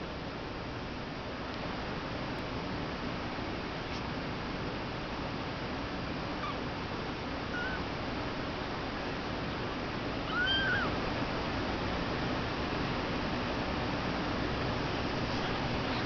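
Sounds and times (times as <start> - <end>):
steady background hiss: 0.0 - 16.0
kitten mewing: 10.2 - 10.9.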